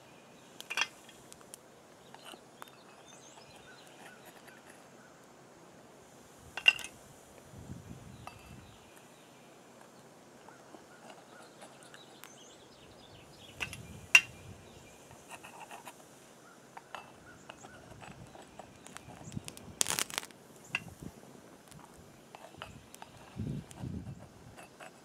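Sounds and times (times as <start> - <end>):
metal tool scraping in pot: 0.6 - 1.2.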